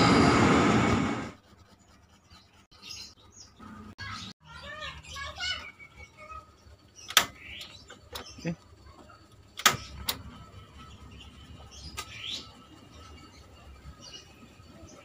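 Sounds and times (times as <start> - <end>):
gas stove ignition clicks: 7.1 - 8.2, 9.6 - 10.2.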